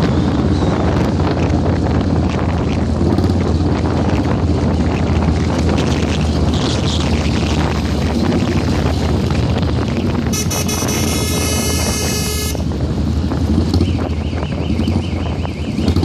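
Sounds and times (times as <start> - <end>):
motorcycle engine rumble: 0.0 - 16.0
wind on microphone: 0.0 - 16.0
vehicle horn: 10.3 - 12.7.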